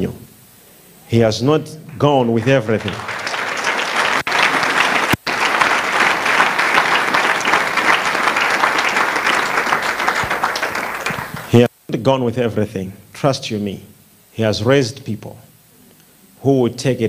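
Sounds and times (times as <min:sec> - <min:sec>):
crowd clapping: 0:01.9 - 0:11.7.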